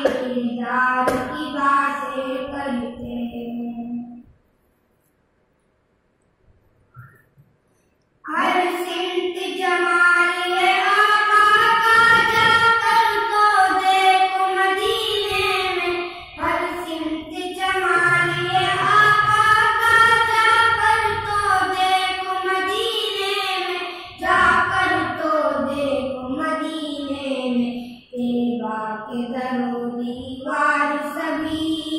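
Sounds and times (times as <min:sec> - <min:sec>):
boy singing unaccompanied: 0:00.0 - 0:04.2, 0:08.3 - 0:31.9.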